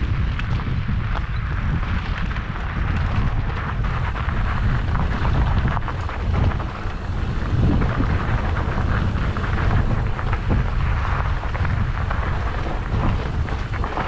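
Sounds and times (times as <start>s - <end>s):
mountain bike rattling over rocks: 0.0s - 14.0s
wind buffeting microphone: 0.0s - 14.0s.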